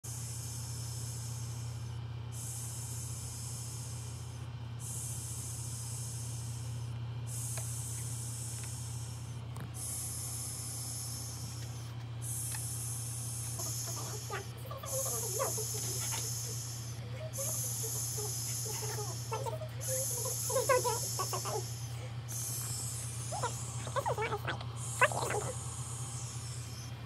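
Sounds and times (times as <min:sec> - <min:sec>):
low steady hum: 0:08.5 - 0:27.0.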